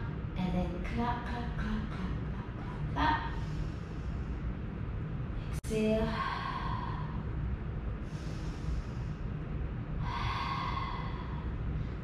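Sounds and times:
low steady hum: 0.0 - 12.0
woman breathing: 2.5 - 12.0.

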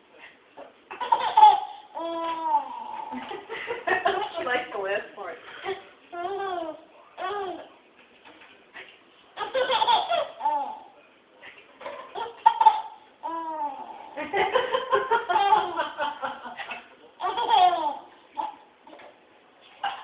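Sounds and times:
baby giggling: 0.6 - 3.3, 9.4 - 10.9, 11.8 - 14.2, 15.2 - 16.0, 16.6 - 19.0
woman laughing: 3.1 - 4.7.

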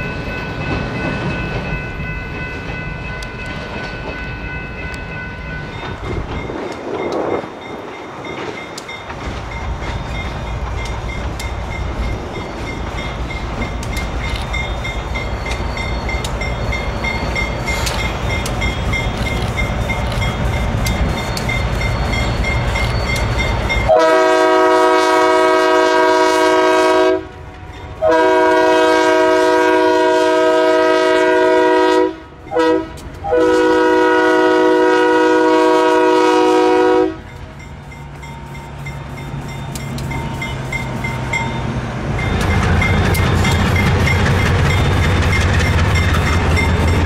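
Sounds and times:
bell dinging: 0.0 - 23.9, 37.3 - 47.0
locomotive air horn blasts: 23.8 - 27.4, 28.0 - 37.3.

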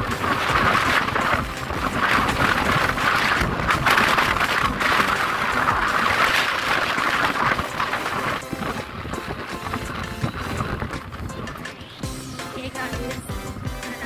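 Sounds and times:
road noise: 0.0 - 14.0
wind buffeting microphone: 0.0 - 14.0.

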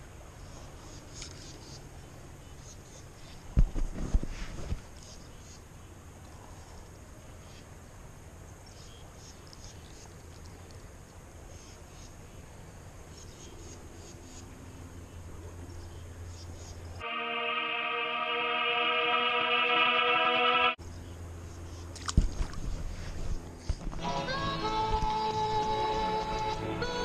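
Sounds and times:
western film music: 17.0 - 20.8, 24.0 - 27.0.

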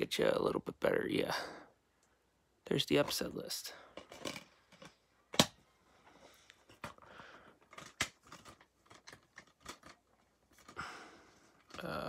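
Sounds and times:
plastic case rustling: 6.6 - 10.8
plastic case clicking: 7.7 - 10.0.

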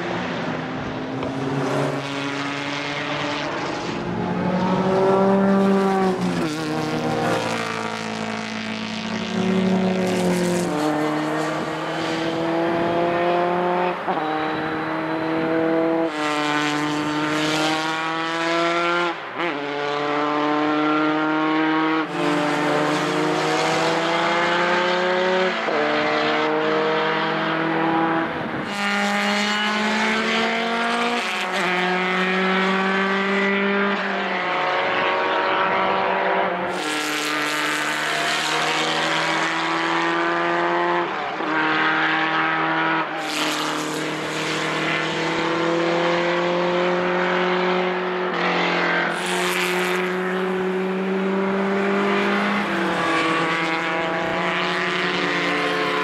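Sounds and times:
racing car engines at full throttle: 0.0 - 56.0.

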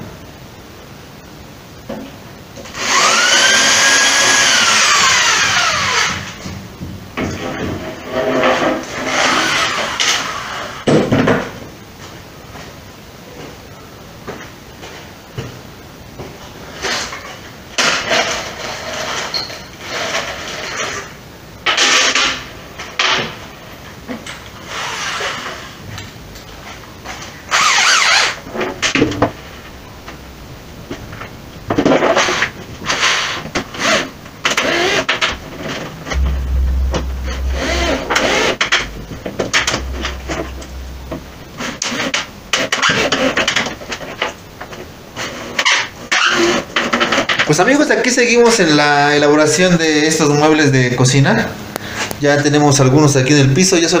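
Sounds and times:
electric drill whining: 2.8 - 6.4.

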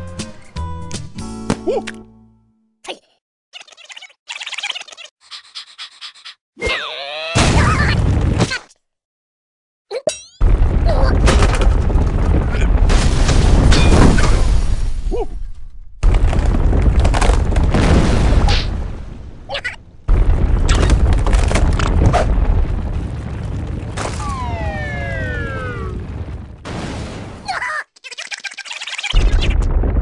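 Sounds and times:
ground cracking and crashes: 7.4 - 8.6, 10.4 - 27.6, 28.4 - 30.0
deep earthquake rumble: 10.4 - 27.4, 29.2 - 30.0
downward sliding wail: 24.2 - 26.3.

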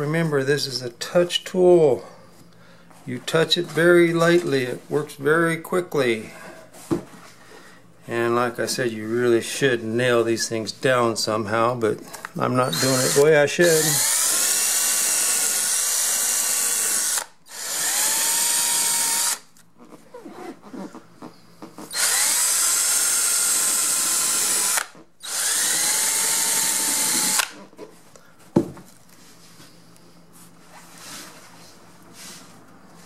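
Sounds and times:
electric drill whining: 12.7 - 19.5, 21.9 - 27.6.

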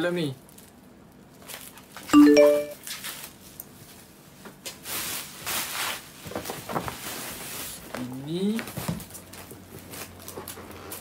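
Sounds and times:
plastic wrapping crinkling: 0.4 - 2.1.

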